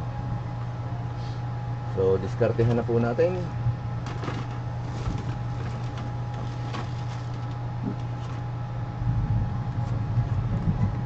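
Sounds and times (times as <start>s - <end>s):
low background hum: 0.0s - 11.0s
low rumble: 8.7s - 11.0s.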